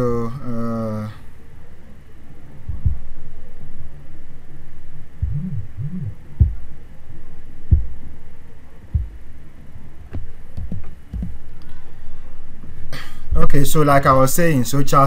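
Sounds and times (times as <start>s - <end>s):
steady low hum: 0.0s - 15.0s
dull low thumps: 2.7s - 3.3s, 5.2s - 6.8s, 7.6s - 8.1s, 8.9s - 9.4s
short low rising-and-falling tones: 5.2s - 6.8s.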